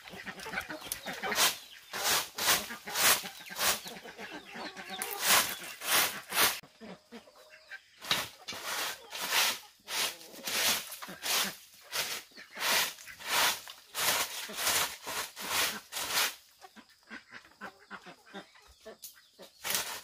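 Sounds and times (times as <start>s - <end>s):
garden tool scraping ground: 0.0s - 6.6s, 8.0s - 16.6s, 19.4s - 20.0s.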